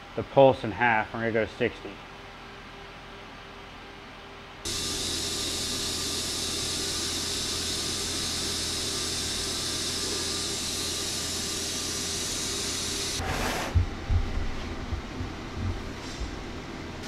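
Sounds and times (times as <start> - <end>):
welding arc hissing and buzzing: 4.7 - 13.8.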